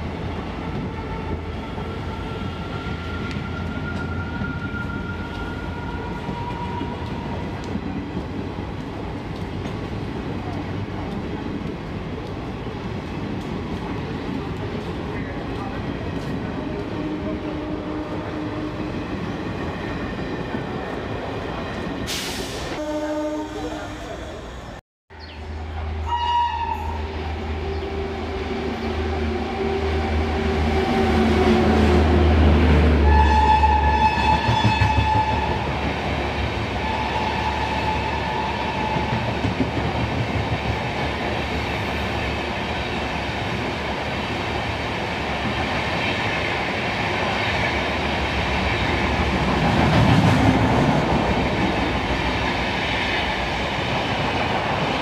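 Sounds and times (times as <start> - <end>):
train rumbling: 0.0 - 55.0
train horn: 16.6 - 19.0, 22.7 - 24.3, 25.9 - 32.2, 32.9 - 35.7, 36.8 - 39.2.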